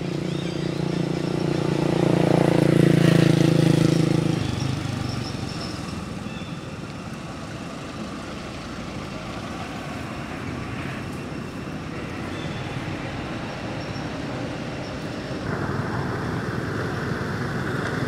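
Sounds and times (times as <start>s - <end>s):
vehicle engine droning past: 0.0s - 6.5s, 7.6s - 18.0s
road traffic hiss: 0.0s - 18.0s.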